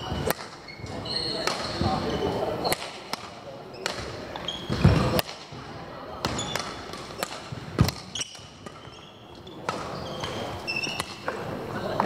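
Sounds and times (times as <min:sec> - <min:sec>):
shoe squeaks: 0:00.0 - 0:02.8, 0:03.6 - 0:05.2, 0:06.3 - 0:07.3, 0:08.0 - 0:11.3
racket hitting shuttlecock: 0:00.1 - 0:01.9, 0:02.6 - 0:05.6, 0:06.2 - 0:08.9, 0:09.6 - 0:11.5.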